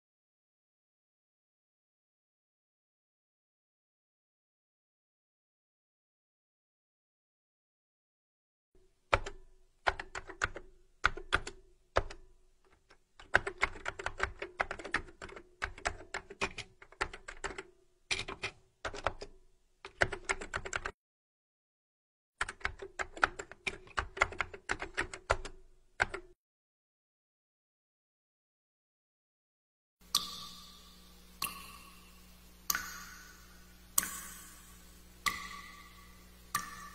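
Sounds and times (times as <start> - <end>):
typing on a keyboard: 9.1 - 21.0, 22.4 - 26.4.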